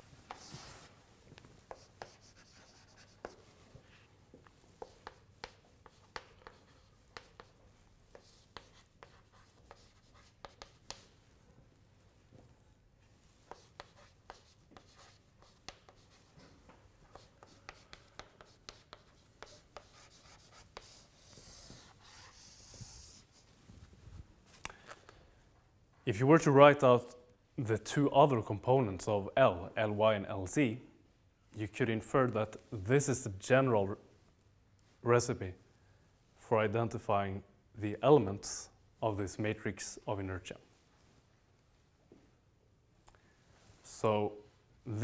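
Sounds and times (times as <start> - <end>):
chalk tapping and scratching on board: 0.3 - 0.9, 1.6 - 3.9, 4.8 - 11.1, 13.4 - 23.3.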